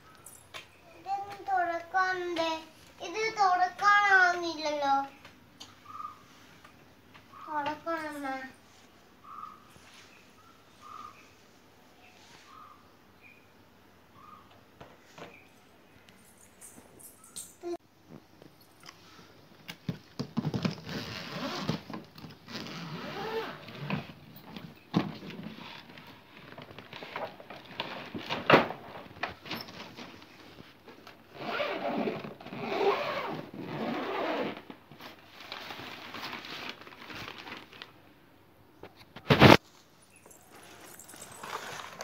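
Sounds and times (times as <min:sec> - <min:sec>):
suitcase zip rasping: 0:20.5 - 0:24.2, 0:31.3 - 0:34.7, 0:40.3 - 0:42.0
fabric lining rustling: 0:39.2 - 0:42.0.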